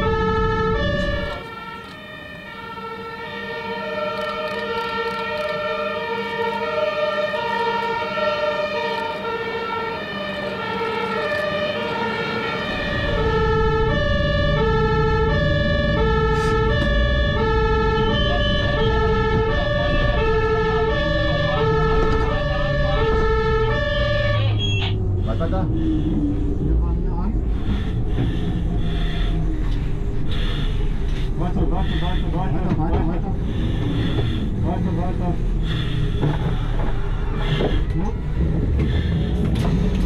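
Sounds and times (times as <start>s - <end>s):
two-tone emergency sirens: 0.0s - 40.0s
low engine rumble: 9.0s - 40.0s.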